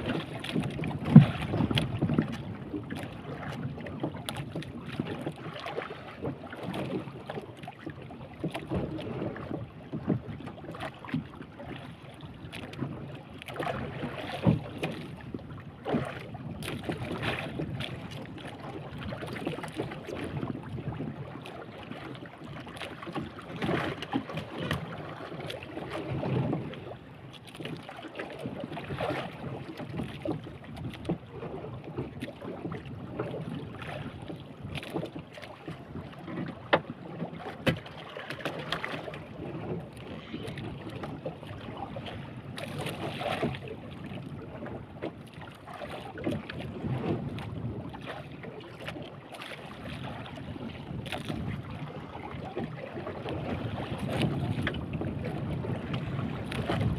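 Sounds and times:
knocks and splashes: 0.0s - 56.9s
waves slapping against boat hull: 0.0s - 56.9s
wind buffeting microphone: 50.4s - 56.9s.

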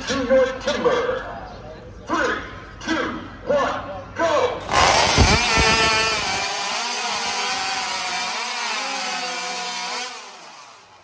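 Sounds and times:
racing chainsaws cutting logs: 4.6s - 11.0s.

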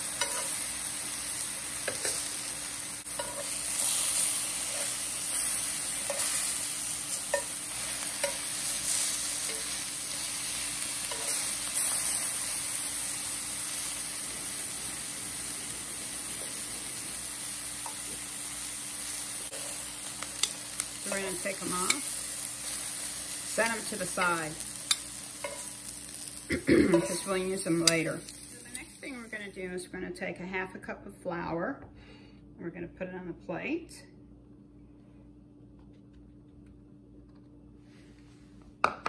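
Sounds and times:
lemon slices sizzling in oil: 0.0s - 29.6s.

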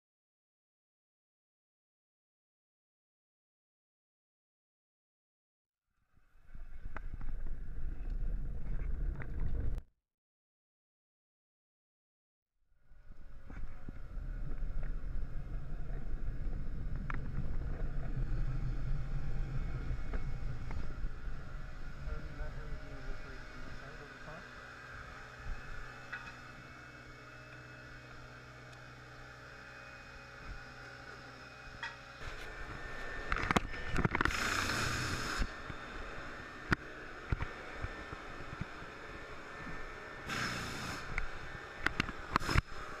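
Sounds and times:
low uneven rumble: 13.1s - 24.5s.

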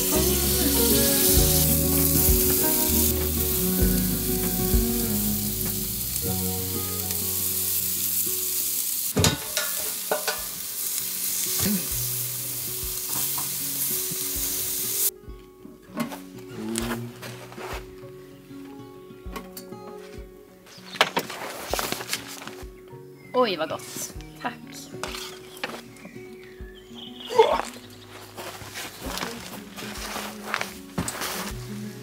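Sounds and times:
meat sizzling on grill: 0.0s - 15.1s
food knocking on grill: 9.2s - 10.6s.

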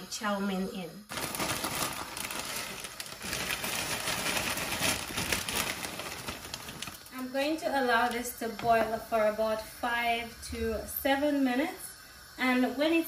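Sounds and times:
water boiling and bubbling: 0.0s - 13.0s
dry noodles tipped from plastic packet: 1.1s - 7.1s.

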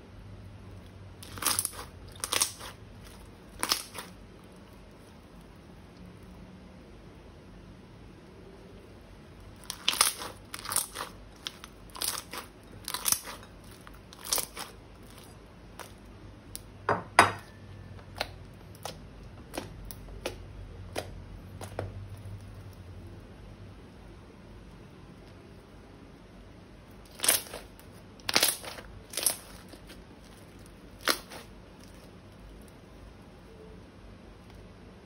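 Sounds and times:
slime crunching and crackling: 0.6s - 5.6s, 9.4s - 16.7s, 18.0s - 23.2s, 26.9s - 32.8s.

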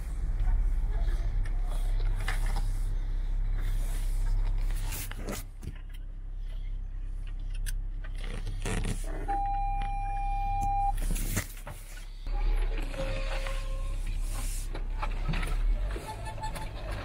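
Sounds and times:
car engine humming in low gear: 0.0s - 12.3s
branches scraping car paintwork: 11.1s - 16.2s.

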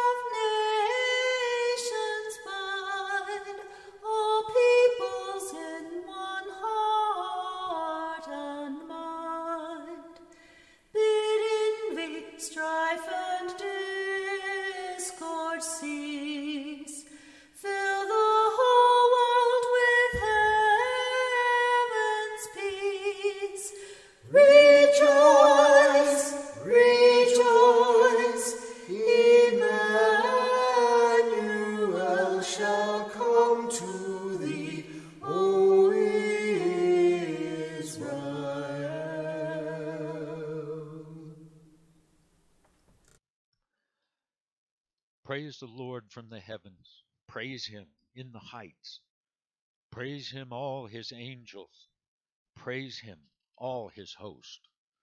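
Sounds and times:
lower harmony voice singing: 17.6s - 41.6s
unaccompanied high voices singing: 17.7s - 41.5s.

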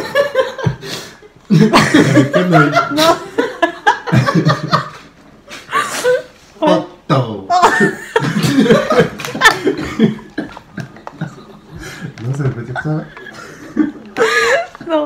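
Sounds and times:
people laughing: 0.0s - 6.3s, 7.5s - 14.9s
woman laughing: 1.6s - 5.0s, 7.5s - 12.1s, 12.8s - 15.0s.

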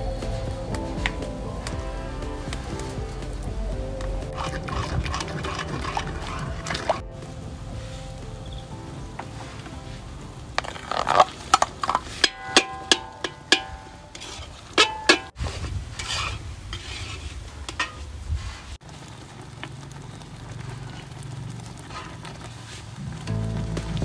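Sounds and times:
metal ladle clanking on wok: 10.6s - 15.3s.

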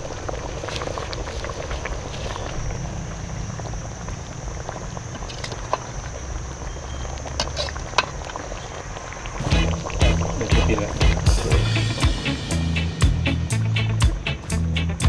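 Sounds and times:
curry bubbling in a pot: 0.0s - 11.2s
music: 9.4s - 15.0s.

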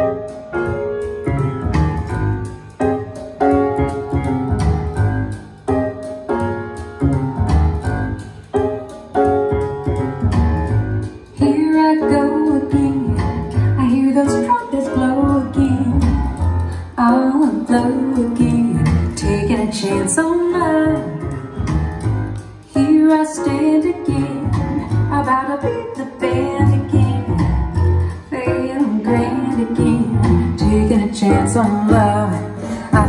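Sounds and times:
piano chords with bass: 0.0s - 33.0s
woman singing: 11.4s - 16.2s, 16.9s - 21.2s, 22.7s - 27.6s, 28.2s - 33.0s.

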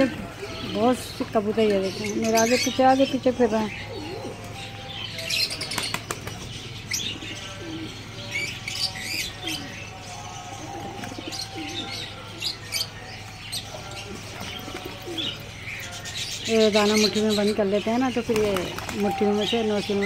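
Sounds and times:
pigeons cooing: 0.0s - 20.0s
pigeon wings flapping: 18.2s - 19.2s.

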